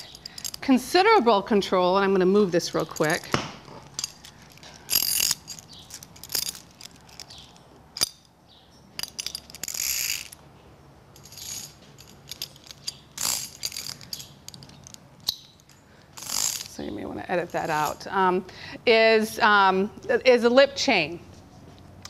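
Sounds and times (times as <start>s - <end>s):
metal chain clinking: 0.0s - 1.1s, 2.6s - 10.5s, 11.1s - 18.1s.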